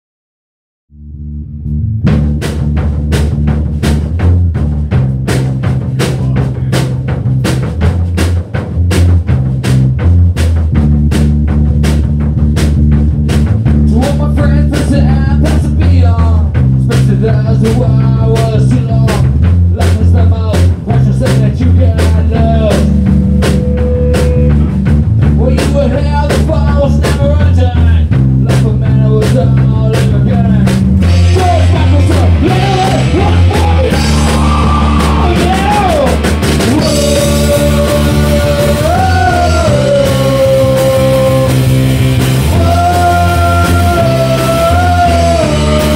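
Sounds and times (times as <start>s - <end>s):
bass guitar: 0.9s - 45.9s
drum kit on a steady beat: 2.0s - 45.9s
man singing into a microphone: 13.9s - 22.9s, 25.4s - 27.9s, 28.5s - 30.6s, 31.3s - 41.7s, 42.5s - 45.9s
electric guitars: 22.4s - 25.2s, 30.8s - 45.9s.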